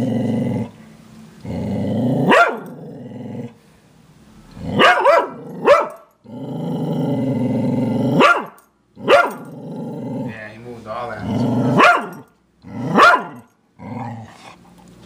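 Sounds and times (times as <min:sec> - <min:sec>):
dog growling: 0:00.0 - 0:00.8, 0:01.4 - 0:03.6, 0:04.4 - 0:14.8
dog barking: 0:02.3 - 0:02.7, 0:04.7 - 0:06.1, 0:08.2 - 0:09.5, 0:11.7 - 0:12.3, 0:12.9 - 0:13.5.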